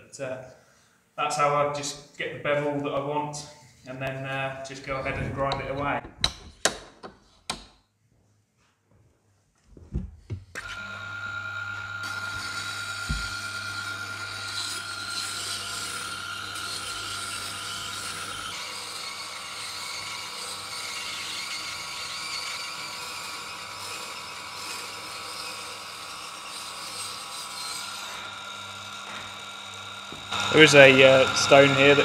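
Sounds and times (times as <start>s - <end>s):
sharpening machine whine and hum: 10.6s - 32.0s.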